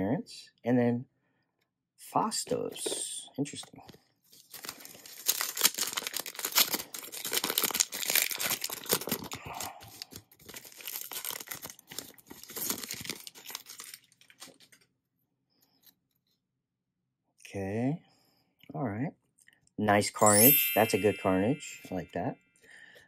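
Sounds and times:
foil wrapper tearing and crinkling: 4.4 - 14.8.

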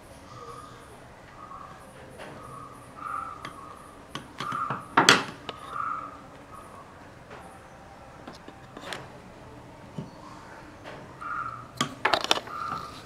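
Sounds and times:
clicks and knocks of tools handled: 3.4 - 6.4, 8.2 - 9.2, 11.8 - 13.0.

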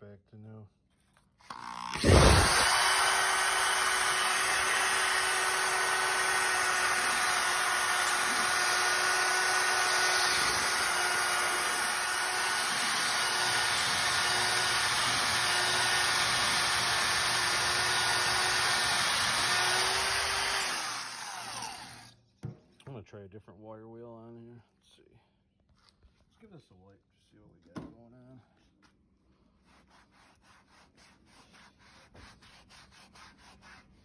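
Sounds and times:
electric drill motor whine: 1.4 - 22.2.

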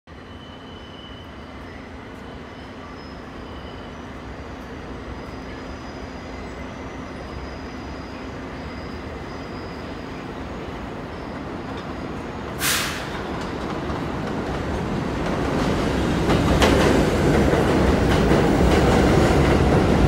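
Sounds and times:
subway train rumbling: 0.1 - 20.0
high wheel squeals: 0.2 - 10.4.

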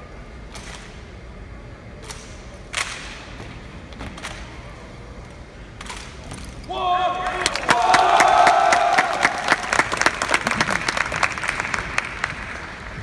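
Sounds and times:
rifles slapped by hand: 2.0 - 3.2.

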